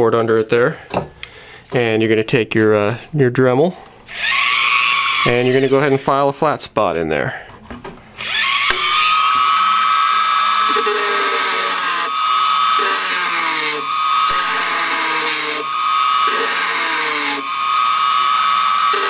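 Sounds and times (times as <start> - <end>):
rotary tool grinding metal: 4.1 - 6.0, 8.2 - 19.0.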